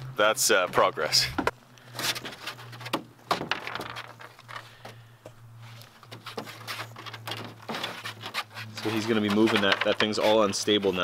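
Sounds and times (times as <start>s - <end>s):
knocks and scrapes in a canoe: 2.0s - 4.6s, 5.7s - 11.0s.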